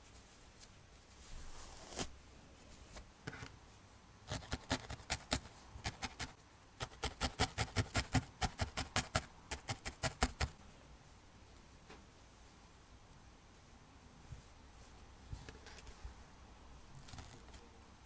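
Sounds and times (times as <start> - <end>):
felting needle poking wool: 4.3 - 10.6.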